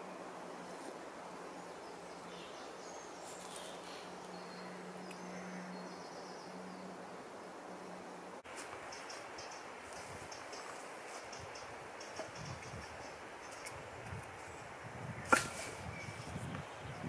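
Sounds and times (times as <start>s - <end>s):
steady hiss: 7.0s - 16.8s.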